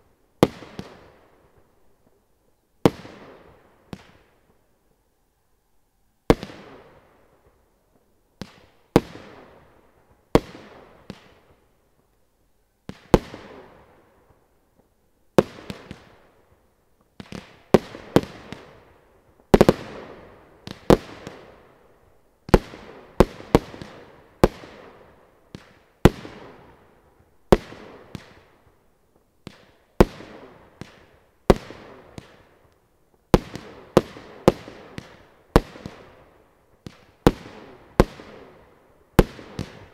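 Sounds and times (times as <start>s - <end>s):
fireworks cake firing bangs: 39.2s - 39.9s.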